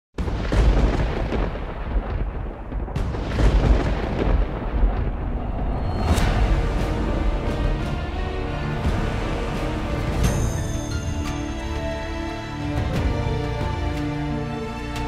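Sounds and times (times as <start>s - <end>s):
heavy booms: 0.2s - 10.8s
deep continuous rumble: 1.7s - 10.2s.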